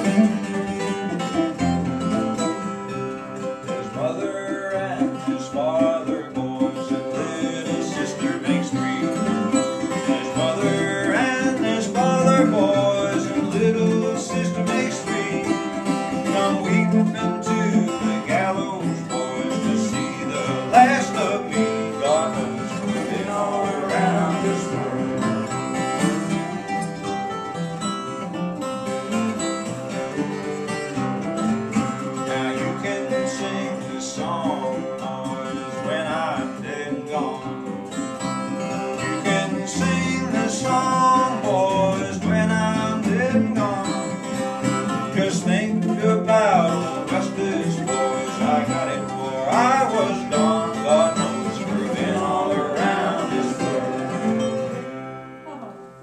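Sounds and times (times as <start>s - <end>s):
acoustic guitar: 0.0s - 56.0s
mandolin strumming and picking: 0.0s - 56.0s
people singing: 3.8s - 26.1s, 32.2s - 37.6s, 39.0s - 54.8s.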